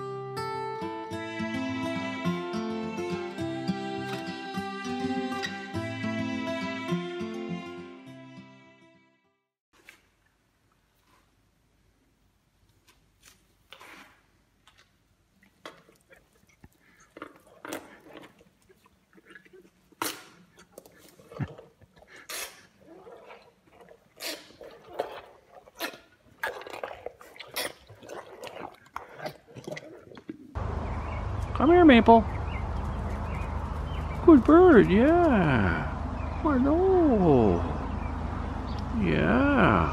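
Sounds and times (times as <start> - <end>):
elephant chewing watermelon: 13.1 - 31.5.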